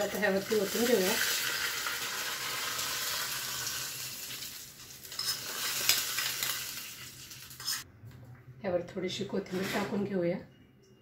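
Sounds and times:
hot oil sizzling: 0.0s - 7.8s.

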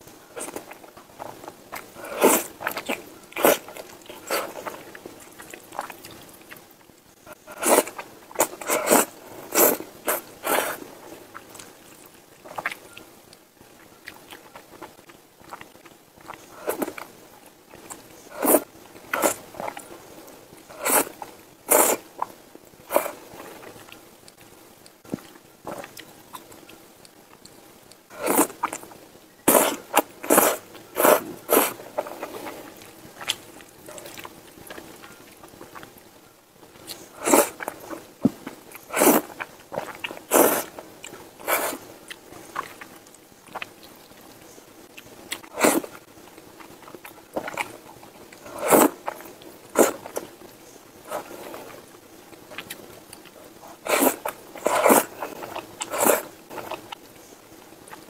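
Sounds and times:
chewing: 0.0s - 58.0s
noodles being slurped: 0.3s - 6.6s, 7.3s - 12.9s, 17.8s - 20.0s, 20.7s - 22.2s, 28.1s - 28.9s, 29.5s - 36.0s, 36.8s - 42.9s, 45.4s - 46.0s, 46.6s - 50.3s, 51.0s - 51.9s, 52.5s - 57.0s.

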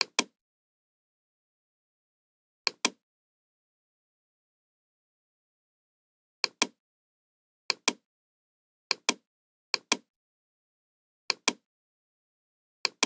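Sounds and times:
computer mouse clicks: 0.0s - 0.4s, 2.7s - 3.0s, 6.4s - 6.8s, 7.7s - 8.0s, 8.9s - 9.2s, 9.8s - 10.1s, 11.3s - 11.6s.

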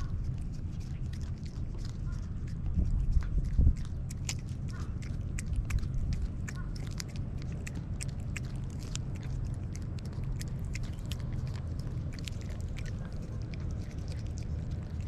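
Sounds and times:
cat licking: 0.0s - 15.0s
low steady rumble: 0.0s - 15.0s.

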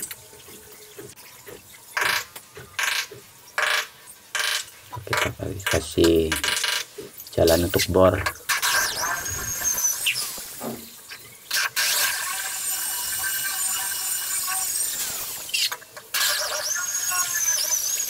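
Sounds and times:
electric drill whining: 8.8s - 10.5s.

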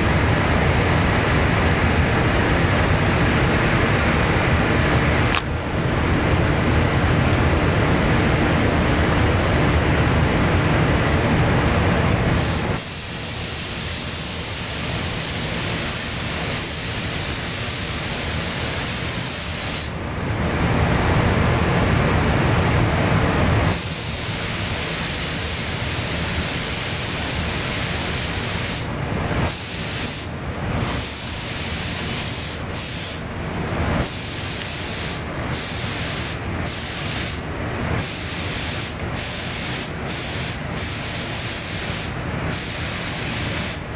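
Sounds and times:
rush of air: 0.0s - 43.9s
paint spray gun hissing: 12.3s - 20.0s, 23.7s - 28.9s, 29.5s - 33.2s, 34.0s - 43.9s.

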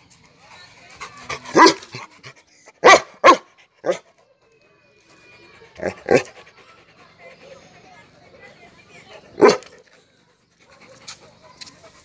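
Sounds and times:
dog barking: 1.5s - 1.8s, 2.8s - 4.0s, 9.4s - 9.7s.

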